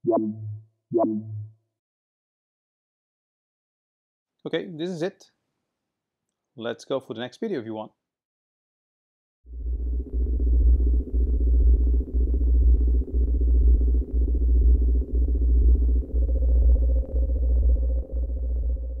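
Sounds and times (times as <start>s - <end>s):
deep bass pulsing: 0.0s - 1.5s, 9.5s - 19.0s
held synth tones: 0.0s - 1.5s.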